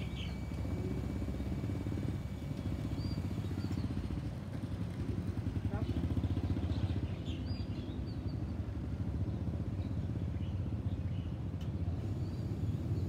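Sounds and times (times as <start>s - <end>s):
distant jet engines rumbling: 0.0s - 13.0s.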